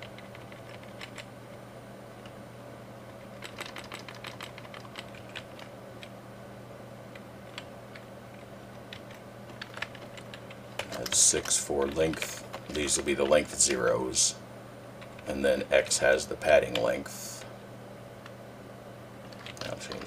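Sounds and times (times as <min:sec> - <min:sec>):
keyboard typing: 0:00.0 - 0:01.3, 0:03.3 - 0:06.1, 0:07.1 - 0:13.8, 0:19.2 - 0:20.0
steady low hum: 0:00.0 - 0:20.0.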